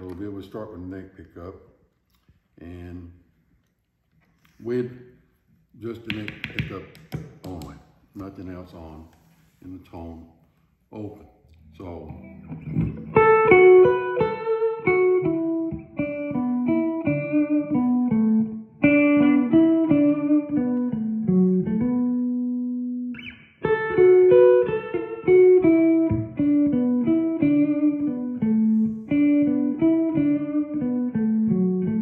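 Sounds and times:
electric guitar melodic line: 0:12.0 - 0:32.0.

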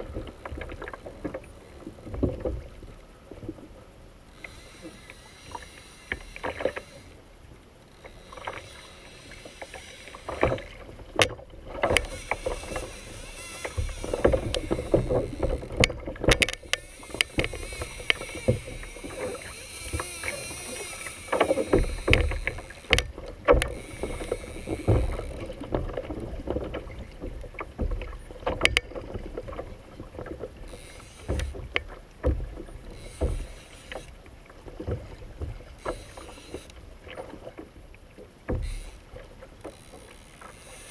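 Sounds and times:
water slapping against hull: 0:00.0 - 0:40.9
knocks and clicks of gear: 0:08.0 - 0:34.1.

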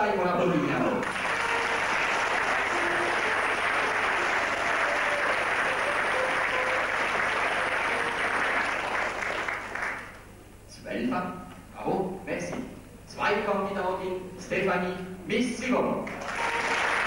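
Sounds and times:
audience applauding: 0:01.0 - 0:10.3, 0:16.1 - 0:17.0.

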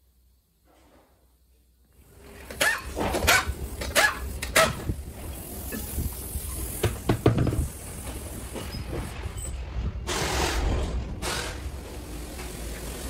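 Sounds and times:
knocks and heavy thumps: 0:06.8 - 0:07.8.

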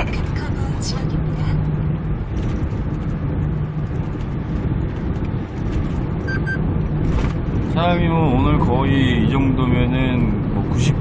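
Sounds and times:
truck engine drone: 0:00.0 - 0:11.0
tyre and road noise: 0:00.0 - 0:11.0
short high beep: 0:06.3 - 0:06.6.

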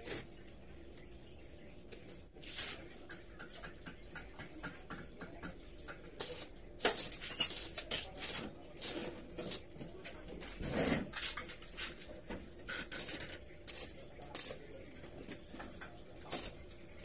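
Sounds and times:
arc welding crackling: 0:06.2 - 0:09.7, 0:12.7 - 0:14.8, 0:16.2 - 0:17.0.

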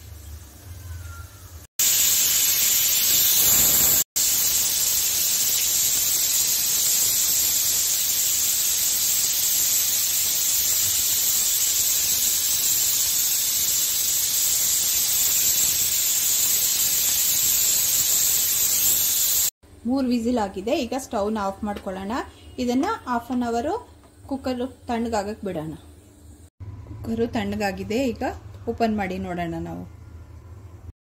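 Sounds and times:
pressure cooker steam hissing: 0:01.8 - 0:19.6.

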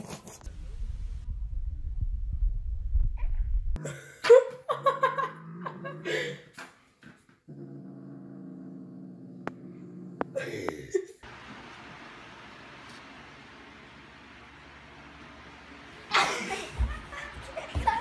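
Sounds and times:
cat growling low: 0:07.5 - 0:10.5.

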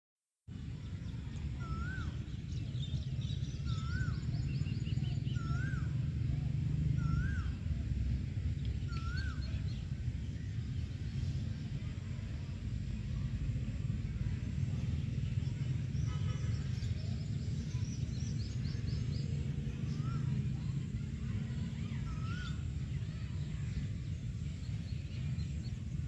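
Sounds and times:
steady low rumble: 0:00.5 - 0:26.0
rising and falling whistled call: 0:01.6 - 0:02.4, 0:03.4 - 0:06.0, 0:07.0 - 0:07.6, 0:08.9 - 0:09.8.

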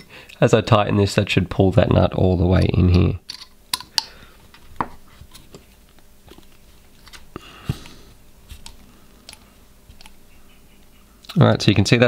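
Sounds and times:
clicks and scrapes of metal parts: 0:03.3 - 0:04.1.

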